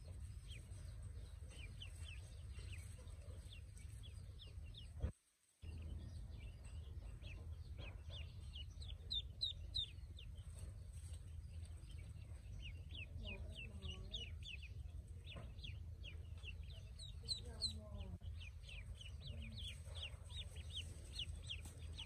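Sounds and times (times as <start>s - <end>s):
ducklings peeping: 0.0s - 5.1s, 5.7s - 22.0s.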